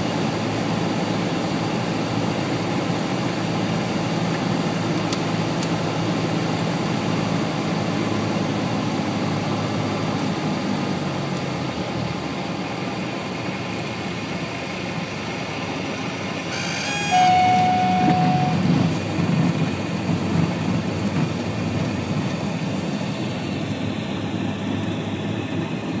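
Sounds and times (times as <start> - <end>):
airplane engine and propeller: 0.0 - 26.0
steady warning tone: 16.5 - 19.0.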